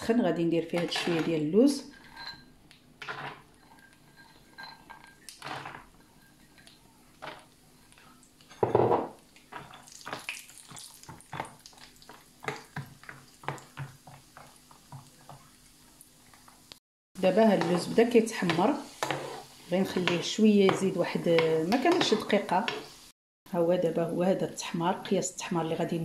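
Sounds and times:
metal spoon clinking and scraping pan: 0.7s - 8.8s, 9.4s - 14.6s, 17.3s - 22.9s
oil bubbling faintly: 1.9s - 23.1s.

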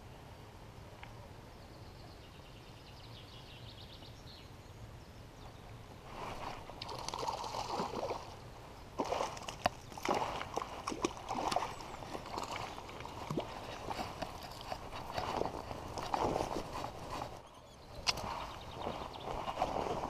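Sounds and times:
fish splashing in water: 6.6s - 8.4s, 9.0s - 17.1s.

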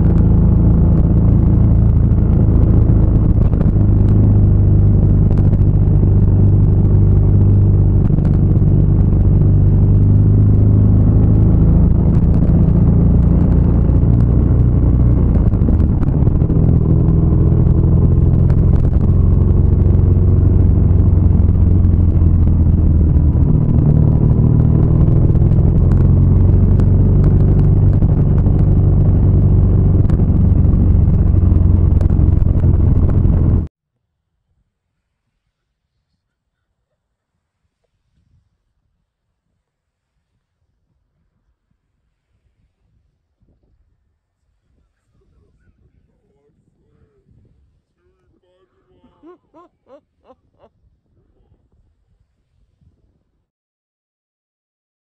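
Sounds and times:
motorcycle engine droning: 0.0s - 33.7s.

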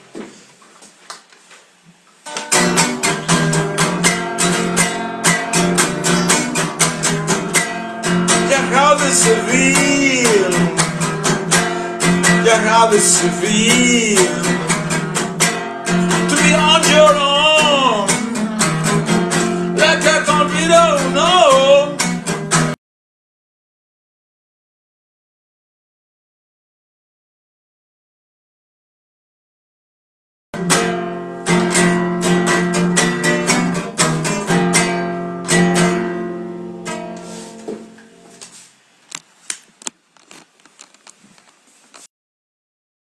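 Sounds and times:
acoustic guitar strumming: 2.2s - 22.8s, 30.6s - 38.6s
man singing: 8.3s - 22.2s.

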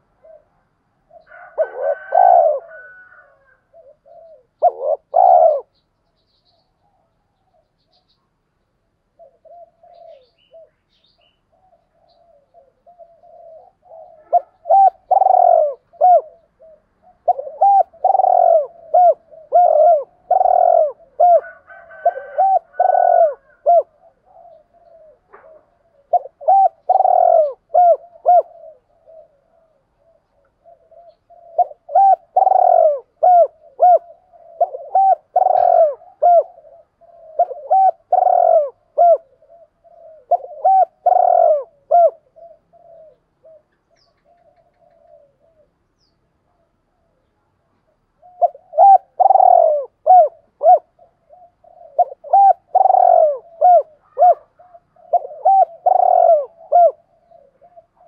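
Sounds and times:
dove cooing: 0.0s - 8.2s, 9.0s - 58.0s.

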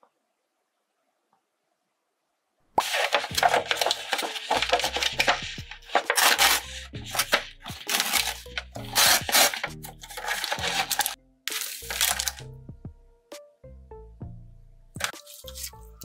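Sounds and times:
foil lid crinkling: 2.8s - 12.4s, 15.0s - 15.8s
soft background music: 2.8s - 16.0s.

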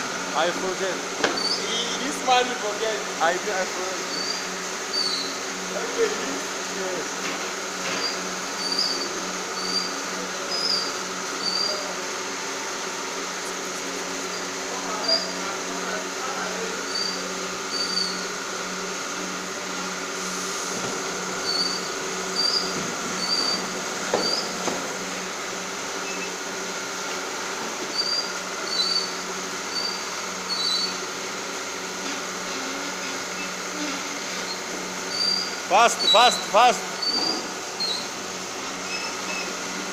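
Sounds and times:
machine humming: 0.0s - 39.9s.

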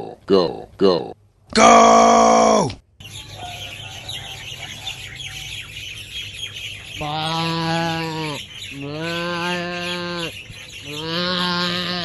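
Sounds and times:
birds chirping: 1.7s - 12.0s
drawn-out animal call: 6.8s - 12.0s.

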